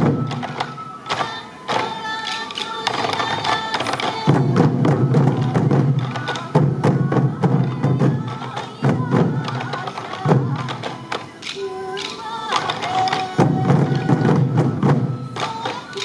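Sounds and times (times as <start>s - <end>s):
bamboo flutes playing melody: 0.0s - 16.0s
taiko drums beating: 0.0s - 16.0s.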